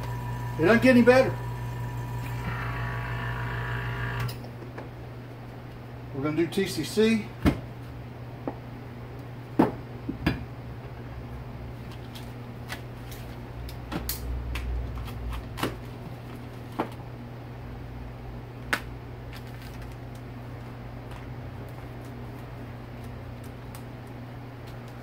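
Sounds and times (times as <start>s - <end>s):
steady low hum: 0.0s - 9.4s.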